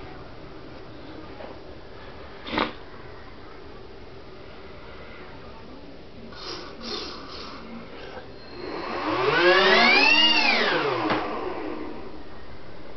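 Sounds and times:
electric motor whine: 8.4 - 12.2.

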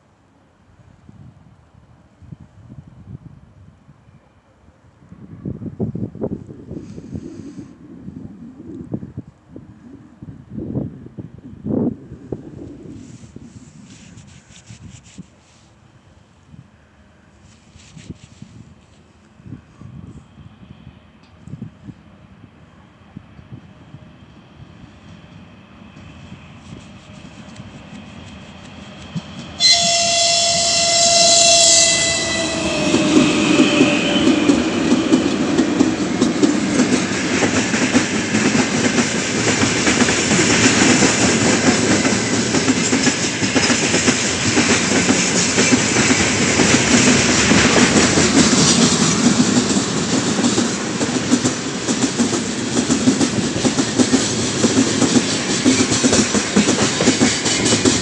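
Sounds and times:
freight train rumbling: 16.2 - 58.0
locomotive horn: 29.6 - 34.4
wheels clacking over rail joints: 32.8 - 58.0.

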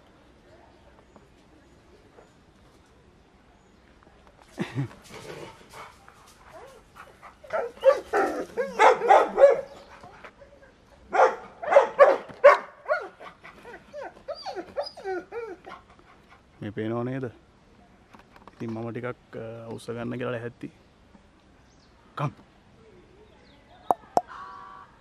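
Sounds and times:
dogs barking: 6.5 - 10.0, 11.1 - 13.5
dog whining: 12.9 - 15.8.

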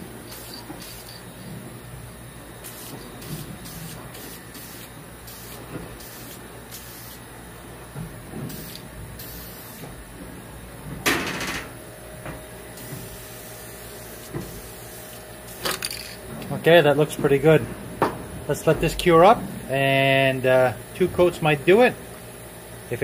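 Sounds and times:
aerosol spray can hissing: 2.6 - 7.2, 8.5 - 9.8.

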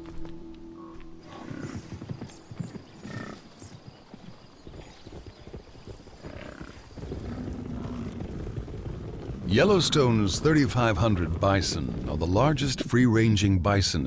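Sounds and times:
herd hooves clattering: 0.0 - 13.3.

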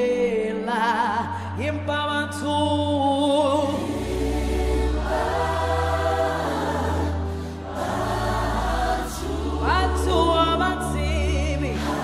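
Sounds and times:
choir singing a hymn: 3.6 - 12.0.

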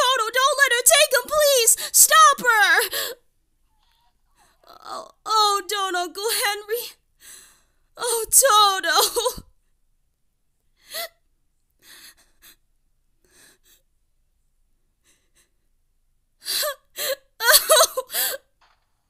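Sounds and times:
girl sobbing: 0.0 - 3.2, 4.7 - 7.0, 8.0 - 9.5, 16.4 - 18.5.

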